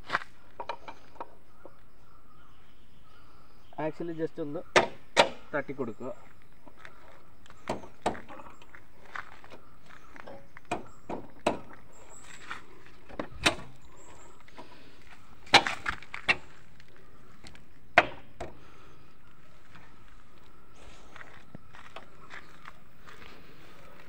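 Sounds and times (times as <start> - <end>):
sharp metal knocks: 4.7 - 5.4, 7.6 - 8.4, 10.7 - 11.8, 18.0 - 18.6.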